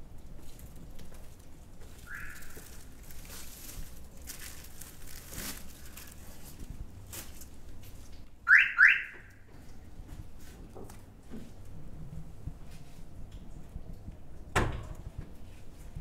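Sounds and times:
car alarm chirps: 2.1 - 2.6, 8.5 - 9.3.

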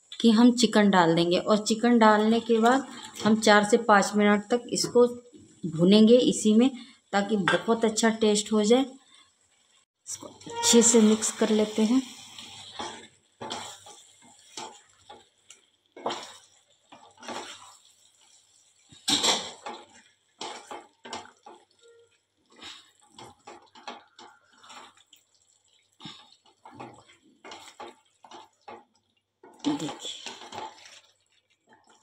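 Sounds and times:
spatula scraping pan: 10.3 - 31.3.

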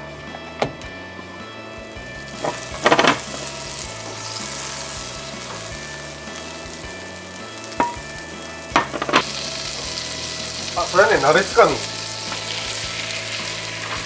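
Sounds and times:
butter sizzling in pan: 1.8 - 14.0
pan knocking on hob: 2.4 - 3.5, 7.8 - 9.5.

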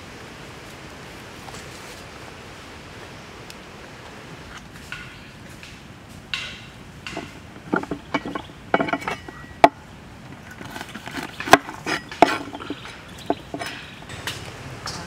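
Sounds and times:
cleaver knocks: 4.9 - 9.8
cleaver scraping and clicking: 7.1 - 14.0.

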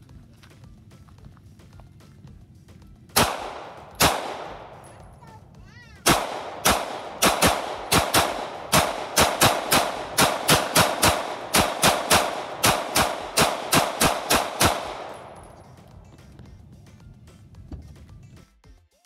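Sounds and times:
pistol shots with echo: 3.2 - 5.2, 6.0 - 16.4.

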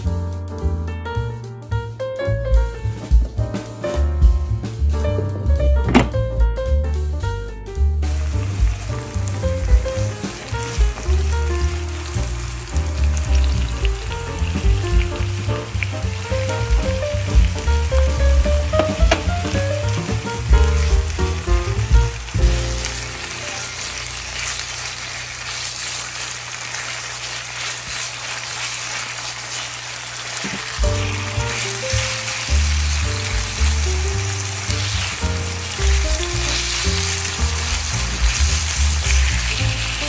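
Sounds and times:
background music: 0.0 - 24.1, 30.8 - 40.0
food sizzling in frying pan: 8.0 - 40.0.

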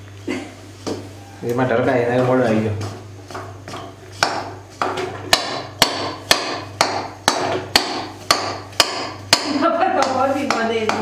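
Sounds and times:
spoon tapping metal pan: 2.8 - 11.0.

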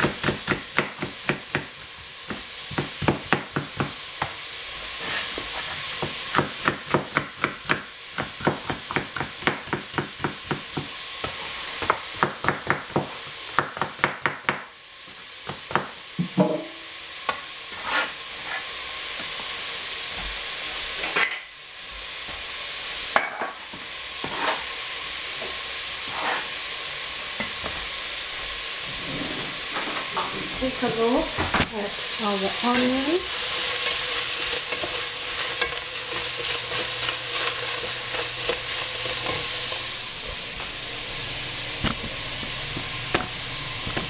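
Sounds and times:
onion sizzling: 0.0 - 44.0
knocks in metal pot: 16.2 - 16.7.

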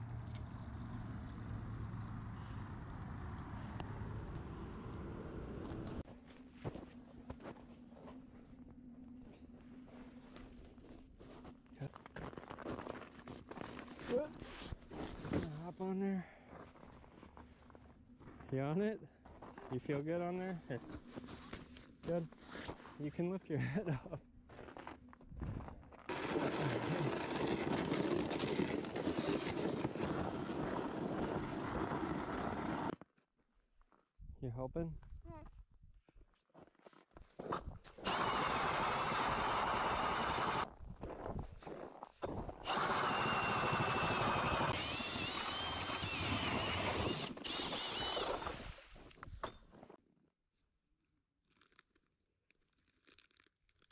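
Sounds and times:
blades grinding ice: 26.1 - 33.0, 38.0 - 40.7, 41.7 - 49.4
ice auger motor whining: 26.1 - 33.0, 38.0 - 40.7, 42.6 - 49.2.

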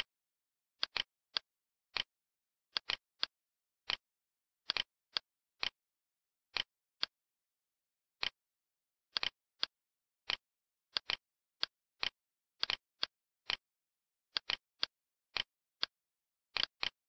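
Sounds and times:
computer mouse clicking: 2.8 - 3.3, 10.3 - 12.8, 14.4 - 16.0.

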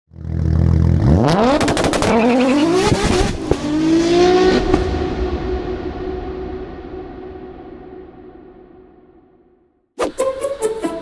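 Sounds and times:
car engine revving: 0.1 - 8.0.

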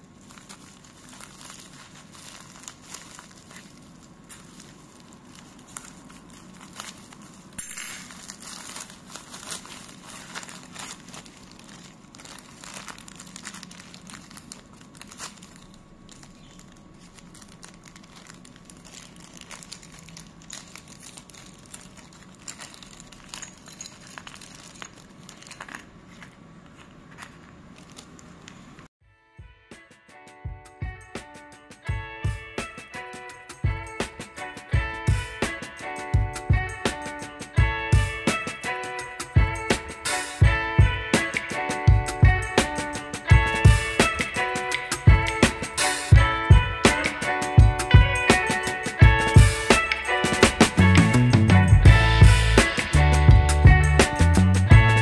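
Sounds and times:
plastic bags crinkling: 0.0 - 28.9.

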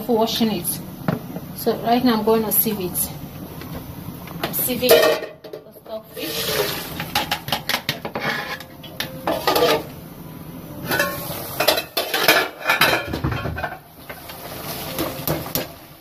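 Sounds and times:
metal pots clattering: 4.8 - 10.0, 10.8 - 15.8.

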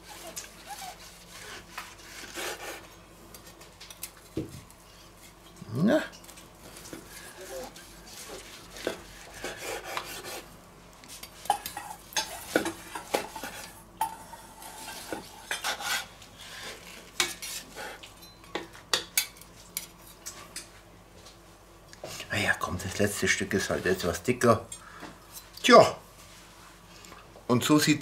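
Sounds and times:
knife and fork clinking: 18.2 - 19.5.

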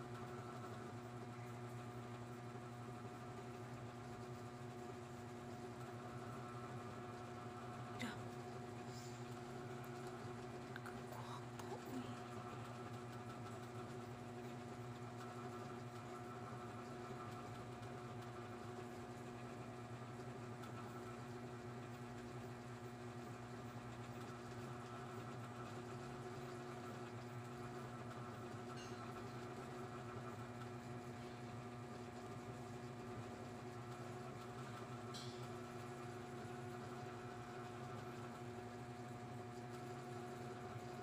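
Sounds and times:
machine hum: 0.0 - 21.6.

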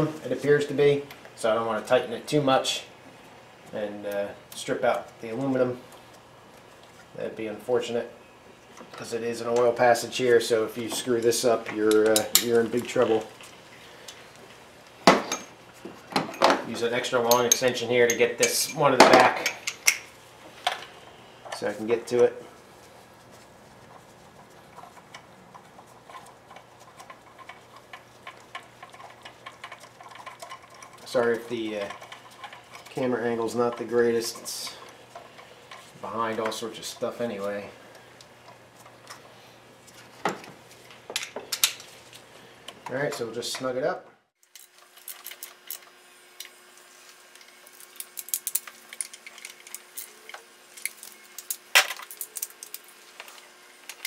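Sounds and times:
faint steady hum: 0.0 - 54.0
metal hand tools clinking: 16.2 - 20.1.

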